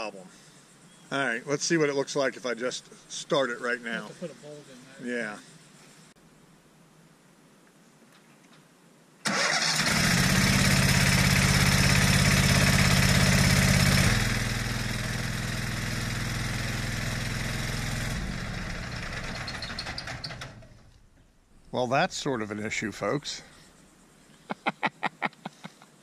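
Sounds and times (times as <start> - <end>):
wood chipper engine droning: 9.3 - 20.9.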